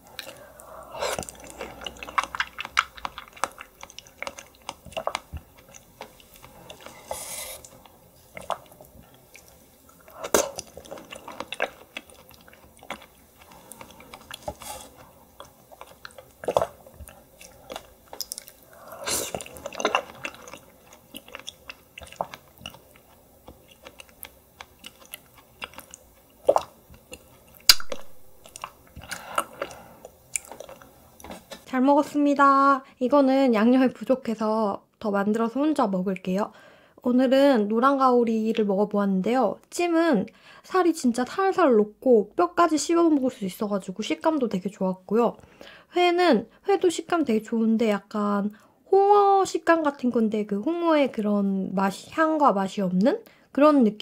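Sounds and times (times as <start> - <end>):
wet chewing clicks and crunches: 1.2 - 7.0, 7.6 - 31.6.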